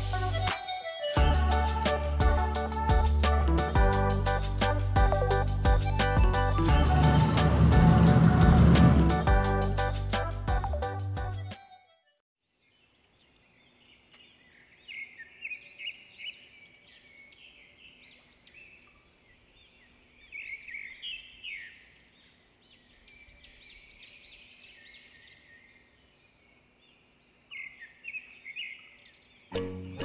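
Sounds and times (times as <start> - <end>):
small birds chirping: 12.5 - 30.0.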